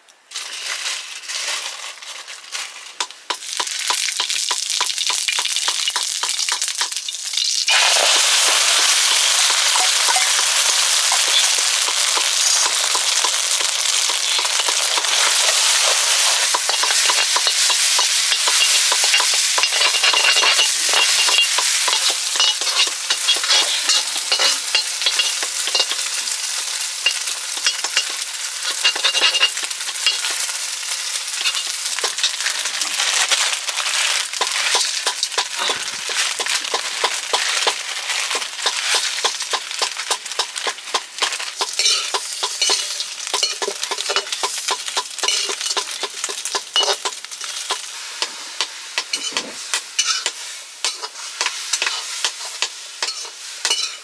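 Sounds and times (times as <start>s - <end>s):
food sizzling in hot oil: 0.0s - 54.0s
metal utensil scraping a wok: 7.7s - 54.0s.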